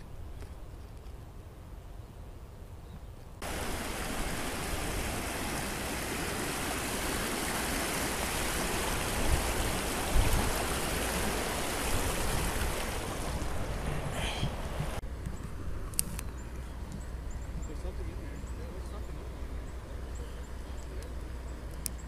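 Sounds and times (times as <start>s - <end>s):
river water rushing: 3.4s - 15.0s.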